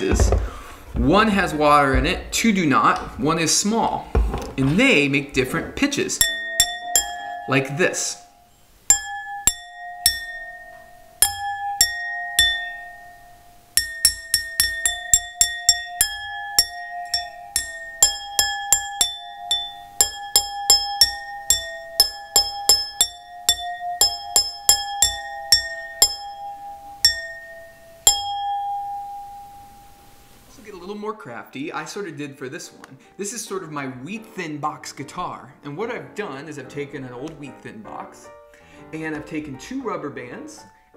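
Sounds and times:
wine glasses struck ringing: 6.1s - 30.4s.

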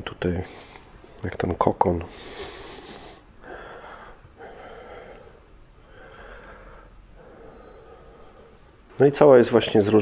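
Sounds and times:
man breathing: 2.1s - 8.9s.

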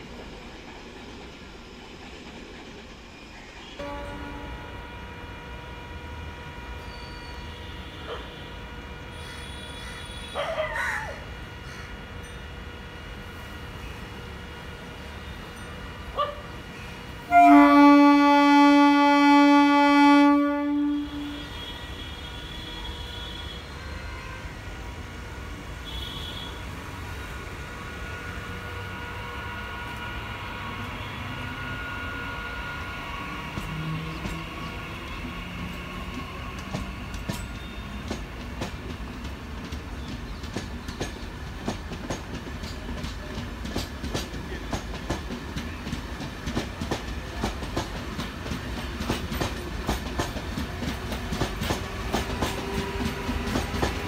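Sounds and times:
train horn blast: 3.8s - 10.5s, 17.2s - 24.8s, 25.7s - 26.8s, 27.8s - 34.2s
wheels clacking over rail joints: 33.5s - 54.0s.

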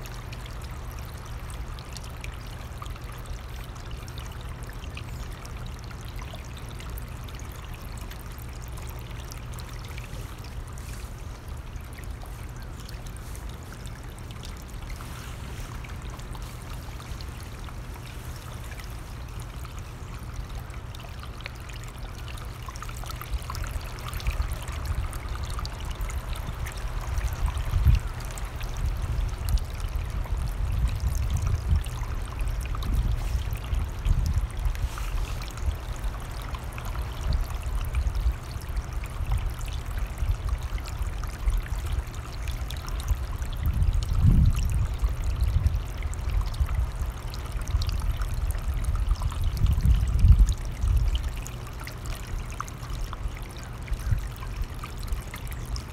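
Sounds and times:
stream water rushing: 0.0s - 55.9s
wind rumble on microphone: 23.3s - 51.4s, 53.9s - 55.9s.

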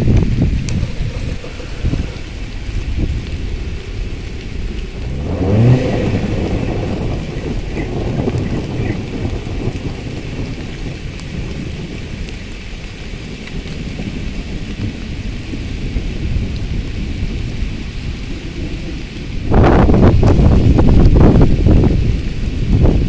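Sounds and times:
steady rain: 0.0s - 23.0s
wind: 0.0s - 23.0s.

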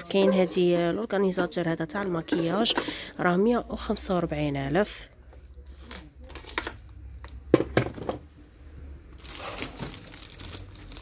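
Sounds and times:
plastic packaging crinkling: 9.2s - 11.0s.

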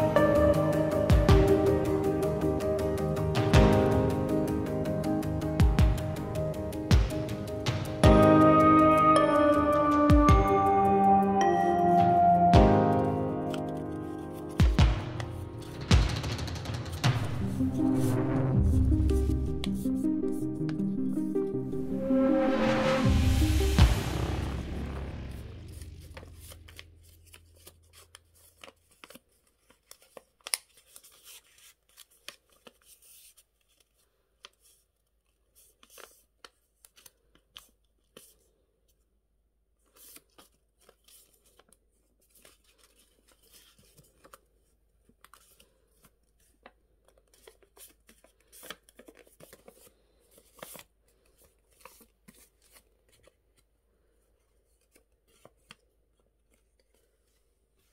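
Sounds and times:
paper being folded and creased: 13.3s - 18.2s, 19.2s - 20.8s, 25.7s - 38.6s, 39.8s - 57.9s.

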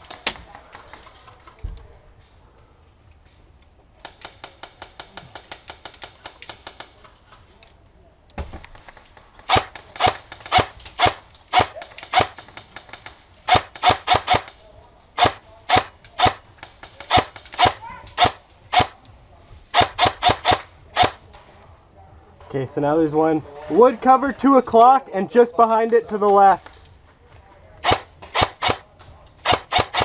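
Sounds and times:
airsoft rifle shots: 4.0s - 7.0s, 8.4s - 14.6s, 15.2s - 19.0s, 19.7s - 21.2s, 27.8s - 30.0s.

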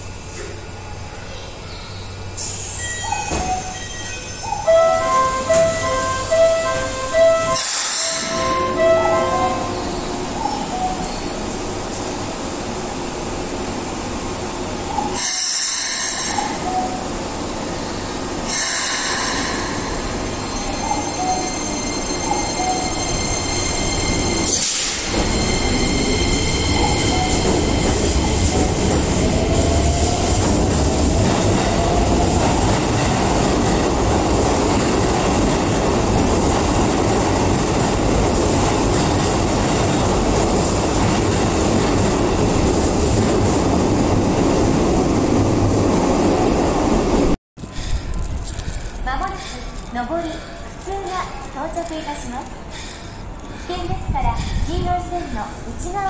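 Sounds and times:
train wheel and motor rumble: 0.0s - 56.0s
train air hisses: 2.3s - 2.9s, 7.6s - 8.4s, 15.2s - 16.5s, 18.4s - 20.2s, 24.5s - 27.0s, 52.6s - 55.8s.

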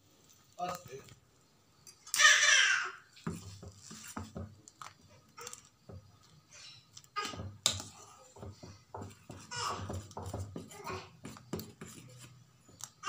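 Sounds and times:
metal spoon stirring in steel pan: 3.2s - 4.4s, 7.5s - 13.0s.

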